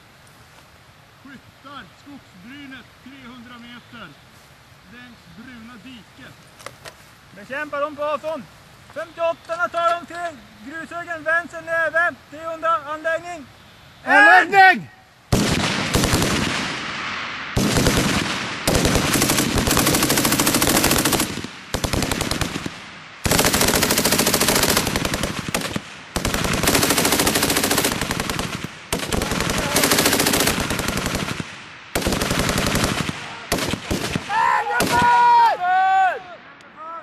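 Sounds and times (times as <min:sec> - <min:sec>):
machine gun automatic bursts: 0:15.3 - 0:16.7, 0:17.6 - 0:34.2.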